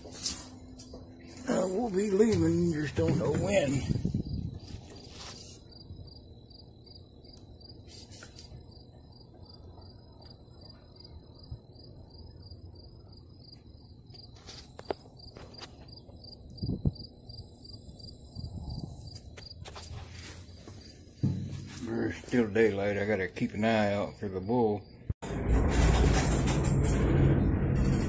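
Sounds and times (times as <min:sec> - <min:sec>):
cricket chirping: 0:00.4 - 0:25.2
dull knock: 0:21.2 - 0:21.8.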